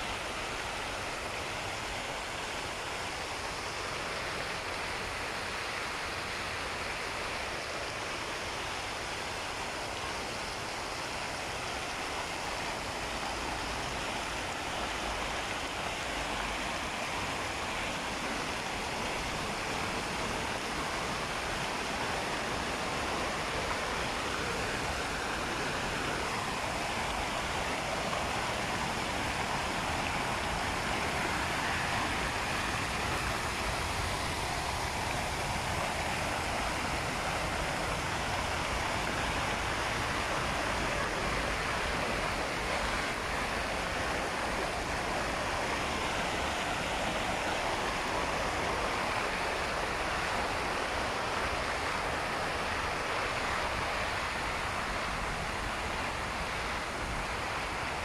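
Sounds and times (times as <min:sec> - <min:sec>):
fountain water splashing: 0:00.0 - 0:58.0.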